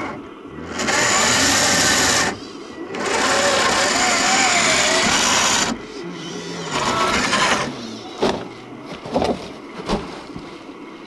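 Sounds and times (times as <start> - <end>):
electric motor whining: 0.0 - 8.4.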